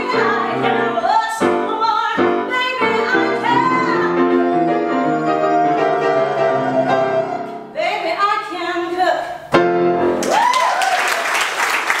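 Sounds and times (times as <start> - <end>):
woman singing: 0.0 - 5.2, 6.4 - 9.3
grand piano: 0.0 - 10.4
cheering whoop: 10.2 - 11.4
audience applause: 10.2 - 12.0.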